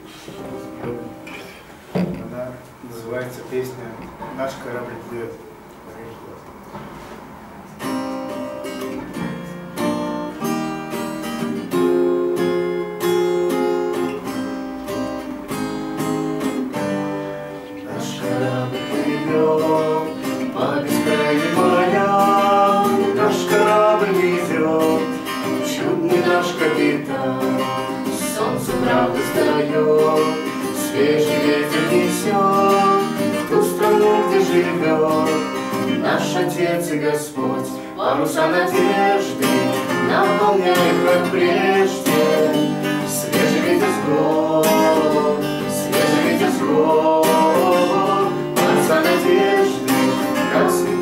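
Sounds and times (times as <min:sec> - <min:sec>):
acoustic guitar strumming: 0:00.0 - 0:05.7, 0:06.6 - 0:51.0
woman singing: 0:17.8 - 0:51.0.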